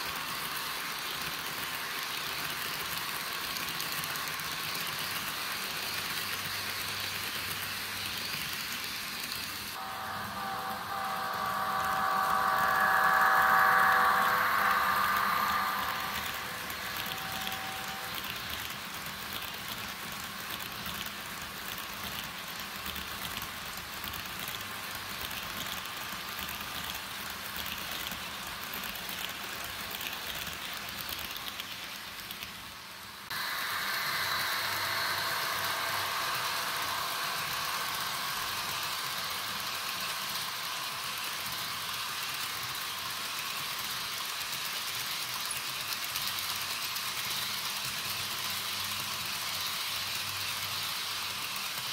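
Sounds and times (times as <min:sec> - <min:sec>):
model locomotive diesel engine sound: 0:00.0 - 0:21.4, 0:33.3 - 0:51.9
model train running on track: 0:00.0 - 0:51.9.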